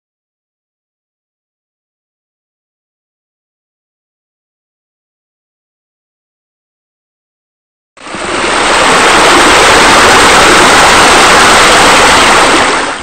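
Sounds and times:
rush of falling water: 0:08.0 - 0:13.0.

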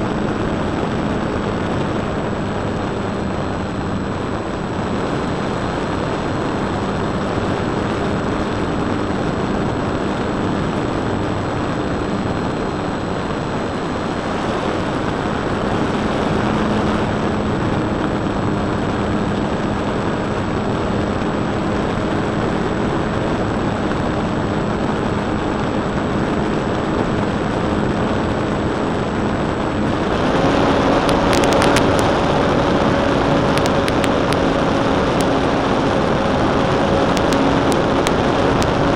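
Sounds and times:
wind rush: 0:00.0 - 0:38.9
sharp clicks: 0:33.4 - 0:35.4.

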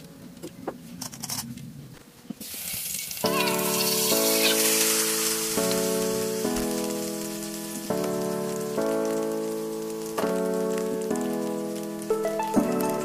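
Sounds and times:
background music with chords: 0:03.3 - 0:13.0.

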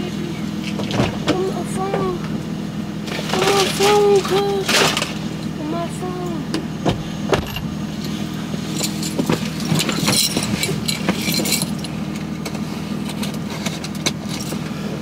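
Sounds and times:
steady low hum: 0:00.0 - 0:15.0
metal jingling: 0:07.5 - 0:12.3.

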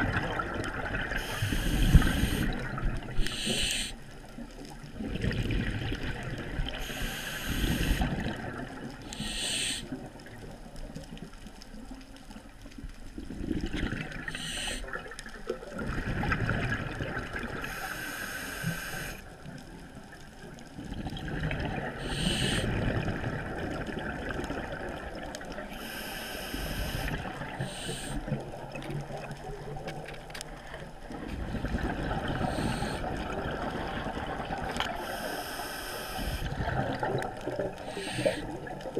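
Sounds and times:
hissing regulator inhalations: 0:01.2 - 0:02.6, 0:03.2 - 0:04.0, 0:06.8 - 0:08.1, 0:09.1 - 0:09.9, 0:14.3 - 0:14.9, 0:17.7 - 0:19.2, 0:22.0 - 0:22.7, 0:25.8 - 0:28.3, 0:32.4 - 0:33.1, 0:35.0 - 0:36.5, 0:37.8 - 0:38.6.

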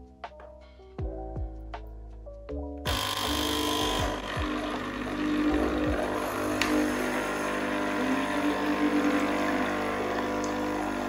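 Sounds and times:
coffee machine pump humming: 0:02.9 - 0:11.0
water pouring into a glass: 0:04.0 - 0:11.0.

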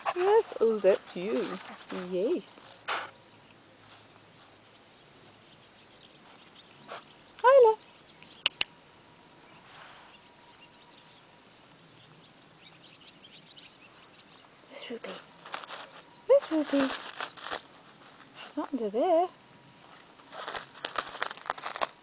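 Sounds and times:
faint background hiss: 0:00.0 - 0:22.0
sharp clicks: 0:08.2 - 0:08.7.

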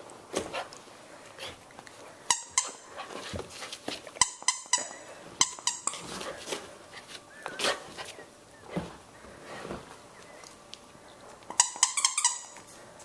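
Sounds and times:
rubber squeaky toy squeaks: 0:11.5 - 0:12.6.

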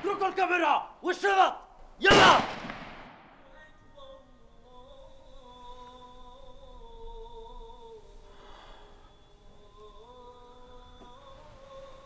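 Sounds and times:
person humming a slow melody: 0:03.4 - 0:12.0.

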